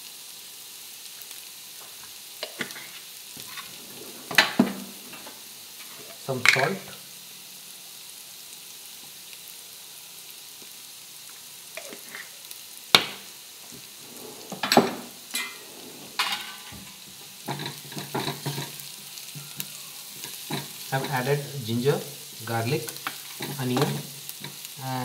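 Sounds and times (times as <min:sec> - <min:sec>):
food sizzling in a frying pan: 0:00.0 - 0:25.0
spoon scraping and knocking in pan: 0:14.4 - 0:21.3, 0:23.0 - 0:24.7.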